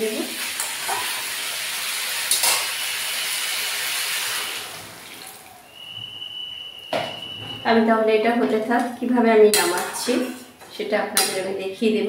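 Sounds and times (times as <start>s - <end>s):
water hissing in hot oil: 0.0s - 5.8s.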